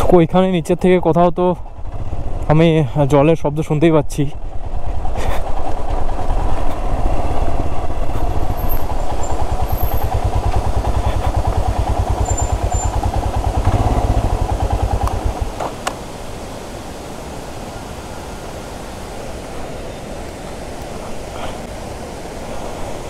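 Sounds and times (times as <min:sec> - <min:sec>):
motorcycle engine running: 0:04.5 - 0:16.0
waterfall rushing: 0:11.8 - 0:23.0.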